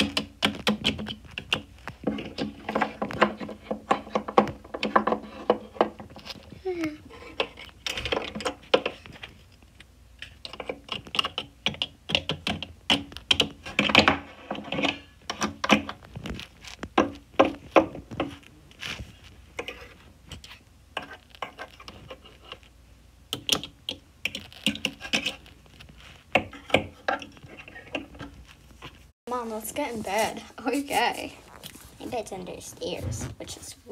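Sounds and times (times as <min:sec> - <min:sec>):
plastic toys clicking and tapping: 0:00.0 - 0:06.5, 0:07.2 - 0:18.4, 0:23.3 - 0:25.5.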